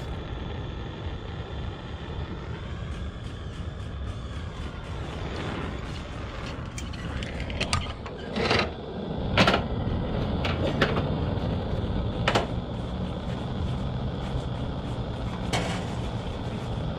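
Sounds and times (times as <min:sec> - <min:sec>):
steady low rumble: 0:00.0 - 0:16.9
sharp clicks and knocks: 0:12.2 - 0:12.6.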